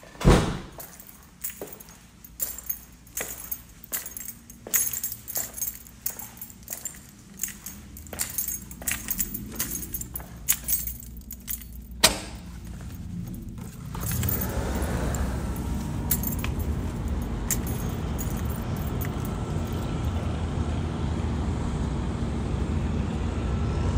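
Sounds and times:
rattling and clicking: 0.8s - 19.9s
low engine rumble: 1.0s - 23.9s
road noise: 1.0s - 23.9s.

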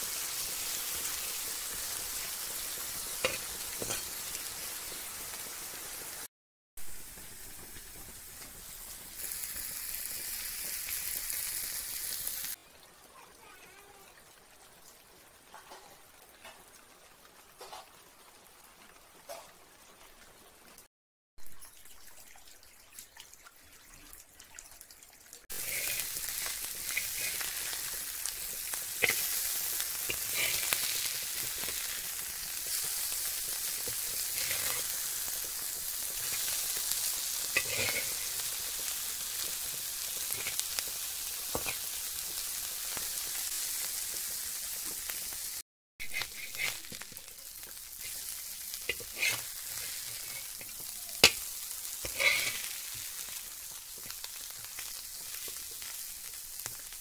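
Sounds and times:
fish sizzling in oil: 0.0s - 22.5s, 24.8s - 57.0s
water trickling: 21.5s - 25.4s
metal spatula scraping pan: 37.6s - 38.2s, 46.0s - 47.0s, 48.9s - 51.4s, 52.0s - 52.7s.

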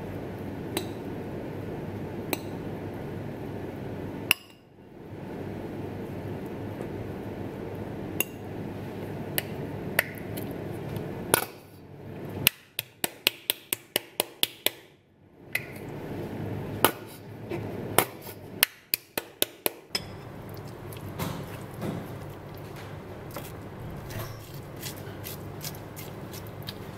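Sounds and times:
cutlery clinking against ceramic bowls: 19.9s - 20.3s.

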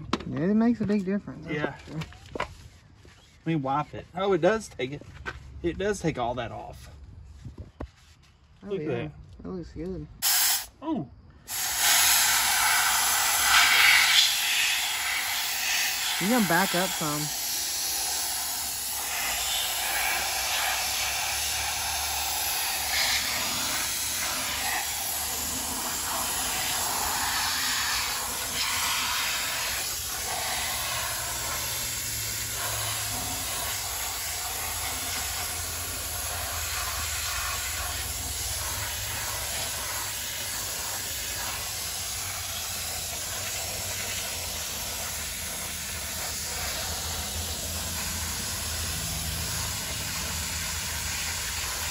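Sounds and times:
steam cleaner hissing: 10.2s - 10.7s, 11.4s - 51.9s.

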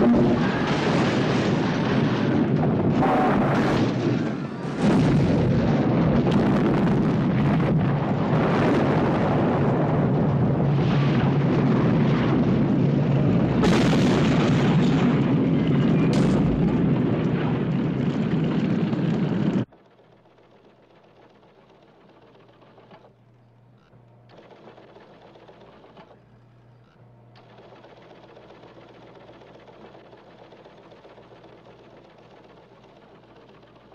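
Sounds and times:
sharp blasts: 0.0s - 19.6s
roar of fire and explosions: 0.0s - 19.7s
rapid mechanical chatter: 18.2s - 33.9s.

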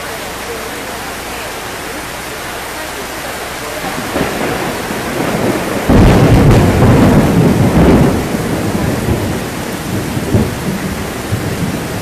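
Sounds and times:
heavy rain pouring: 0.0s - 12.0s
thunder clap rumbling: 3.8s - 12.0s.

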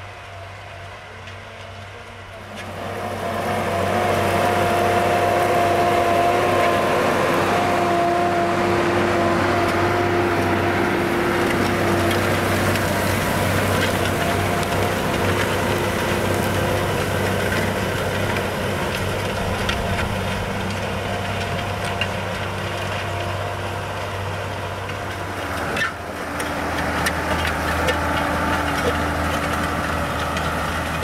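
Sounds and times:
harrow rushing through dry soil: 0.0s - 31.0s
tractor engine drone: 0.0s - 31.0s.

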